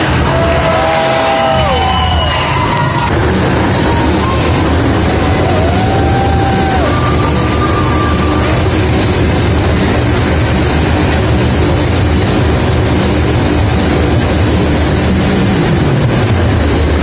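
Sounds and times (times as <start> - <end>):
motorcycle engines revving: 0.0 - 17.0.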